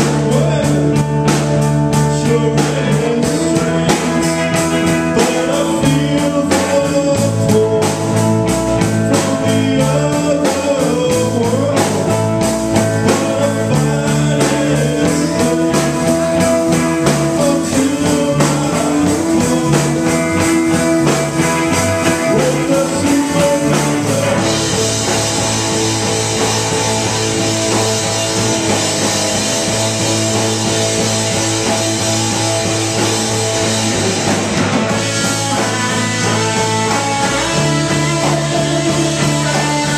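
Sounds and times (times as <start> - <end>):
live rock band playing: 0.0 - 39.9.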